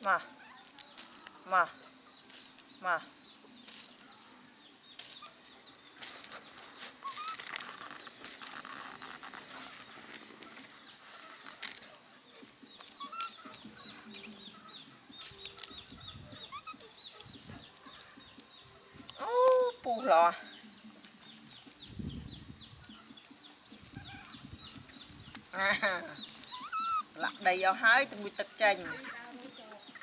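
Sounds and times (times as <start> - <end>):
gravel clattering and crunching: 0.6 - 1.4, 2.2 - 2.8, 3.6 - 4.2, 4.9 - 19.8, 20.7 - 26.7.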